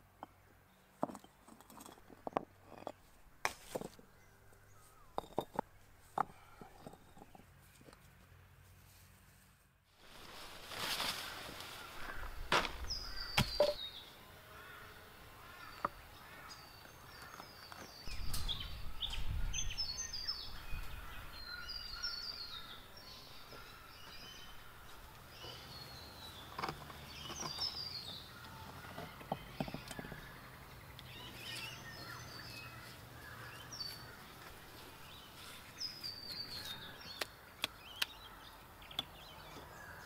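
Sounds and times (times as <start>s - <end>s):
birds chirping: 0.0s - 8.0s, 10.7s - 40.0s
stones knocking on stone: 1.0s - 4.0s, 5.1s - 8.0s, 12.5s - 13.8s.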